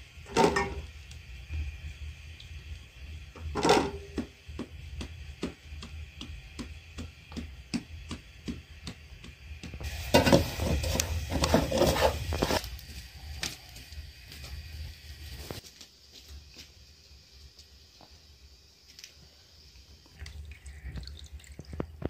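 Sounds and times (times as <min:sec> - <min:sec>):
hands patting dough: 0:04.1 - 0:12.6
wood fire rushing and crackling: 0:04.2 - 0:15.7.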